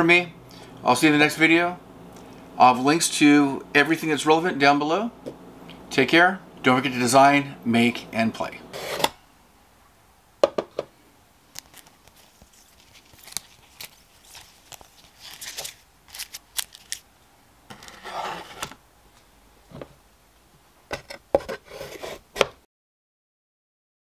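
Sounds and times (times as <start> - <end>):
cards rubbing and scraping: 8.7 - 9.2, 11.6 - 17.0, 17.7 - 18.8, 21.0 - 22.6.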